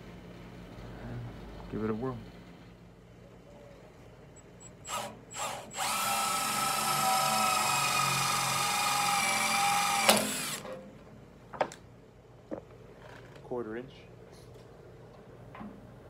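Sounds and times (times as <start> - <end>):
cordless drill whining: 4.8 - 10.7.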